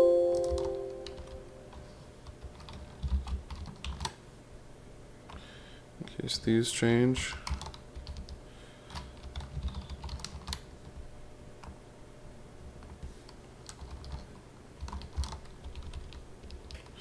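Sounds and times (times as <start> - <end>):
low steady hum: 0.0 - 17.0
keyboard keystrokes: 0.3 - 1.4, 2.3 - 4.2, 7.4 - 10.6, 13.6 - 17.0.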